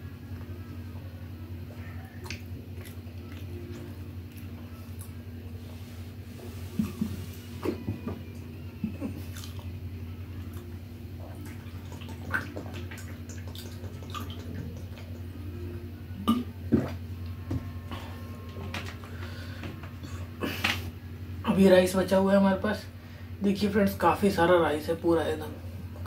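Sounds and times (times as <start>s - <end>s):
low hum: 0.0s - 23.5s
chewing and smacking: 1.7s - 5.2s, 9.0s - 9.8s, 10.4s - 15.3s.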